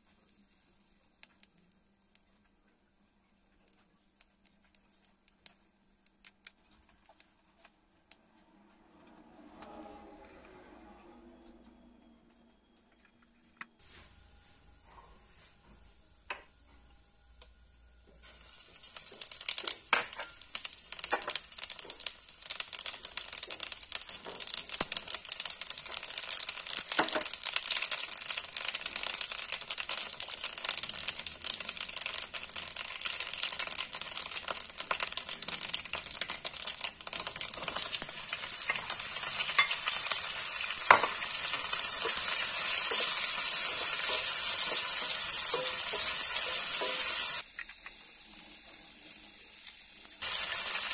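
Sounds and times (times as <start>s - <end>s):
oil sizzling and crackling in a wok: 0.0s - 2.2s, 17.3s - 50.9s.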